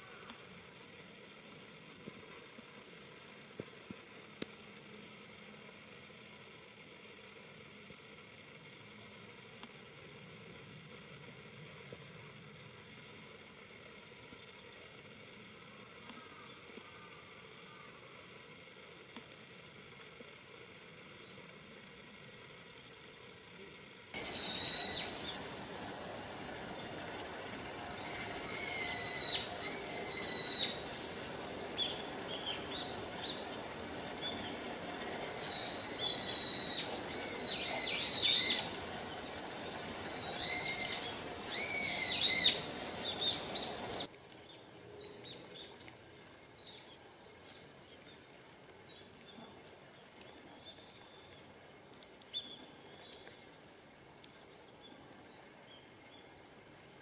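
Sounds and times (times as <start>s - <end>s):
steady background hiss: 0.0s - 57.0s
thin high bird calls: 24.2s - 25.5s, 28.0s - 31.1s, 31.8s - 51.6s.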